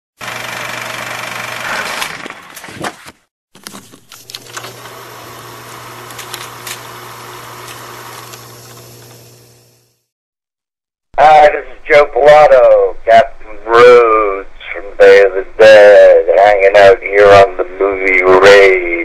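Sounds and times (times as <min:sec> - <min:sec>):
mechanical engine-like running: 0:00.2 - 0:02.2, 0:04.2 - 0:10.1.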